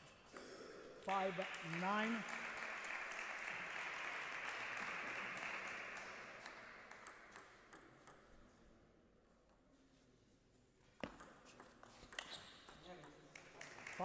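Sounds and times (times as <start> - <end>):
table tennis ball bouncing: 6.4 - 8.3, 11.0 - 13.8.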